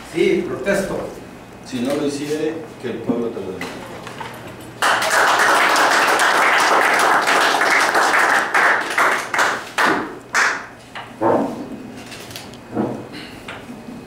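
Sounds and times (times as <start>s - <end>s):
people applauding: 4.8s - 10.7s.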